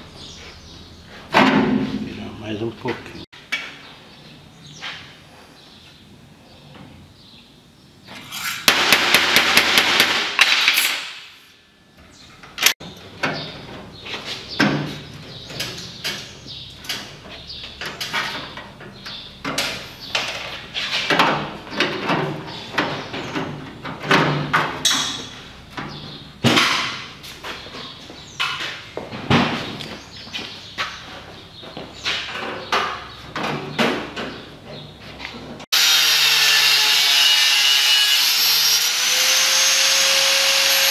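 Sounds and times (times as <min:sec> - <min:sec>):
hammer striking sheet steel: 0:08.4 - 0:11.4.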